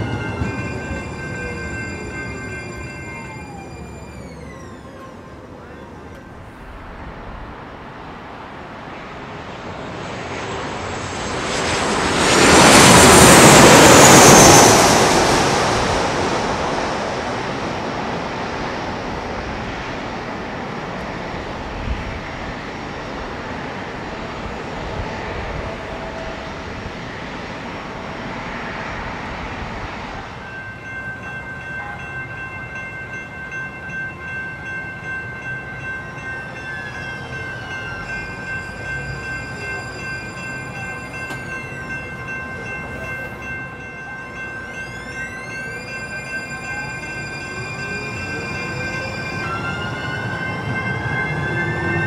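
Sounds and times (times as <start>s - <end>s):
high multi-tone whine: 0.0s - 8.1s, 8.8s - 52.0s
jet airliner roar: 0.0s - 30.8s.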